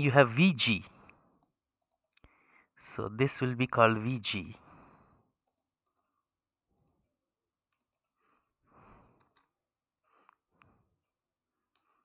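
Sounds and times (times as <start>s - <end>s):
faint breath: 0.9s - 1.6s, 2.2s - 2.8s, 4.6s - 5.4s, 8.1s - 11.0s.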